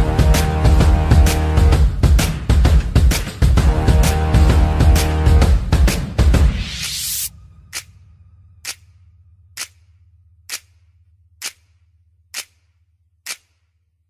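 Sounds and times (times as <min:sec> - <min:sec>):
background music: 0:00.0 - 0:11.8
low tone: 0:07.3 - 0:10.4
clock-like ticks: 0:08.6 - 0:09.0, 0:09.6 - 0:13.6.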